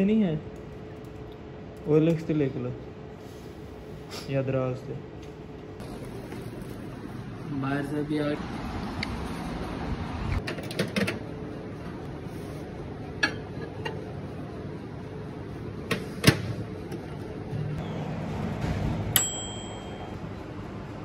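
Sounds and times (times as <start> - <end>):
microwave oven humming: 10.8 - 21.0
microwave timer bell ding: 19.1 - 20.2.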